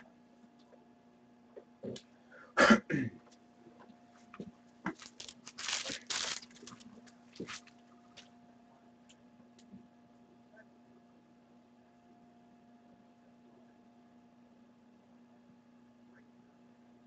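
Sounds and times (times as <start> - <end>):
low electrical hum: 0.0 - 17.0
person coughing: 2.5 - 3.2
rustling: 4.9 - 7.7.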